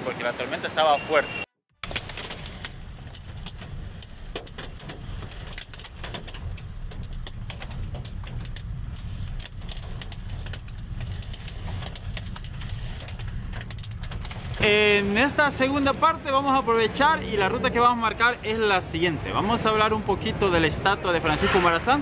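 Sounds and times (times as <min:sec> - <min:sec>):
hail and rain striking vehicle: 0:01.8 - 0:14.6
low vehicle rumble: 0:01.8 - 0:14.6.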